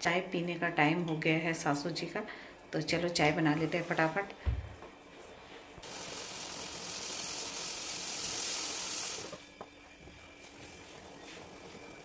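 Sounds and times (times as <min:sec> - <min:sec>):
milk boiling with a hiss: 0:05.8 - 0:12.0.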